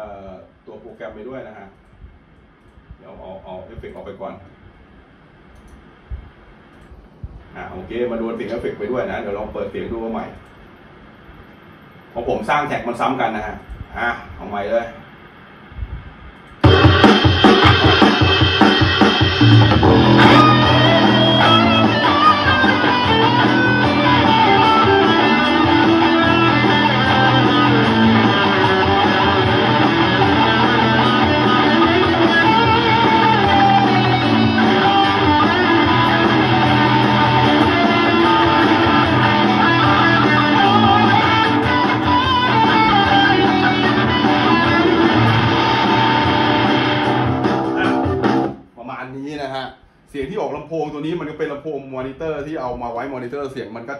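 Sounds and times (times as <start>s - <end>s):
electric guitar riff: 16.6s - 48.6s
rock backing track: 16.6s - 48.7s.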